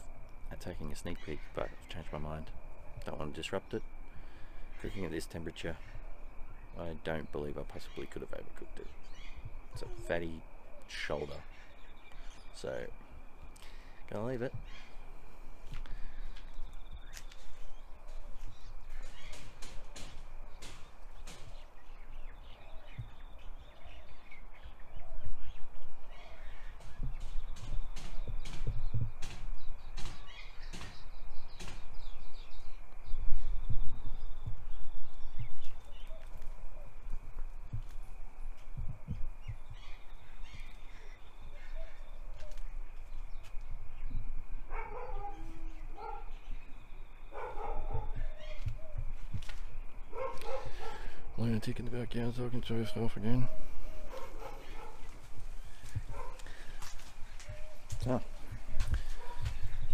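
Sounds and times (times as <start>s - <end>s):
birds chirping: 0.0s - 59.9s
footsteps outdoors: 0.0s - 59.9s
wind rumble on microphone: 16.5s - 51.4s, 53.4s - 59.9s
dog barking and yipping: 44.7s - 46.3s, 47.3s - 48.3s, 50.1s - 51.1s, 53.4s - 55.1s, 56.1s - 56.5s, 59.2s - 59.5s.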